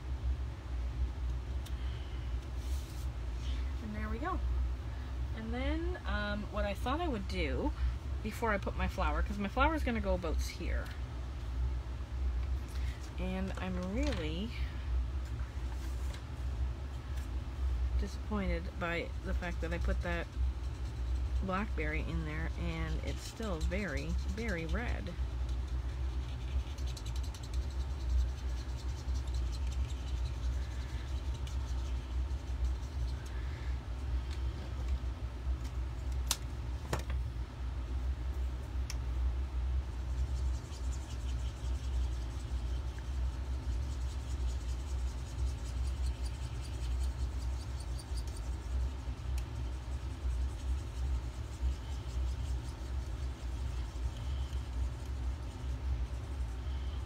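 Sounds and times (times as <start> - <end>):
low background rumble: 0.0 - 57.0
marker scratching on paper: 19.3 - 33.3, 39.9 - 57.0.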